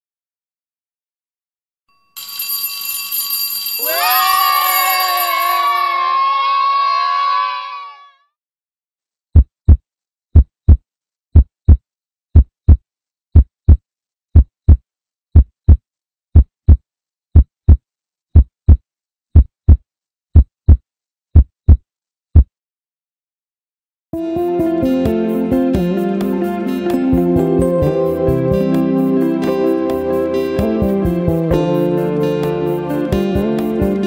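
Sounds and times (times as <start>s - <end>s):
heartbeat thuds: 9.4s - 9.8s, 10.4s - 10.8s, 11.4s - 11.8s, 12.4s - 12.8s, 13.4s - 13.8s, 14.4s - 14.8s, 15.4s - 15.8s, 16.4s - 16.8s, 17.4s - 17.8s, 18.4s - 18.8s, 19.4s - 19.8s, 20.4s - 20.8s, 21.4s - 21.8s.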